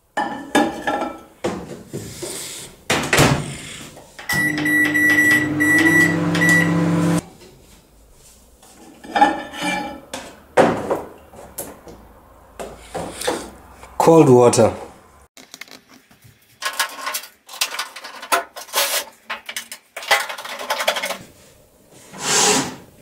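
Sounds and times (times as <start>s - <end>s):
high beep: 4.3s - 7.2s
microwave humming: 4.3s - 7.2s.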